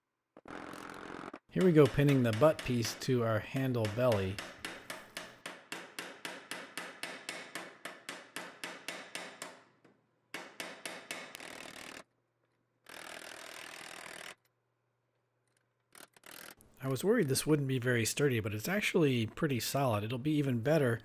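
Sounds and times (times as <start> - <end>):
hammer tapping steel pins: 1.5 - 11.5.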